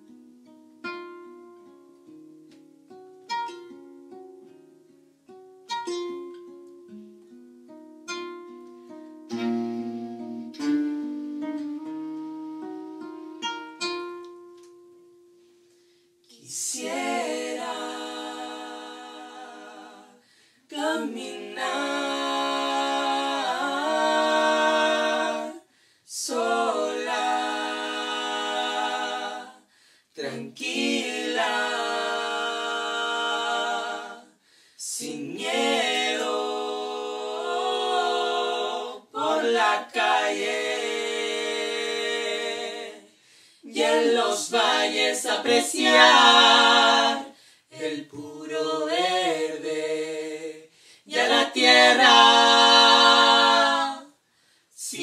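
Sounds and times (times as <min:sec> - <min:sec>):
plucked acoustic guitar notes: 0:05.6 - 0:15.4
singer breathing: 0:20.2 - 0:20.7, 0:25.7 - 0:26.1, 0:29.6 - 0:30.1, 0:34.4 - 0:34.8, 0:43.1 - 0:43.7, 0:47.3 - 0:47.7, 0:50.7 - 0:51.1, 0:54.2 - 0:54.8.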